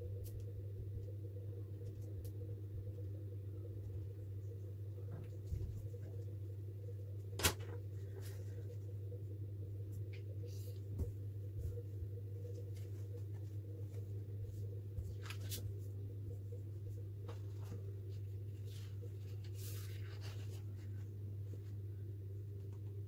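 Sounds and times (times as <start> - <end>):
steady low hum: 0.0 - 23.0
paper rustling: 15.0 - 15.9, 17.2 - 21.1.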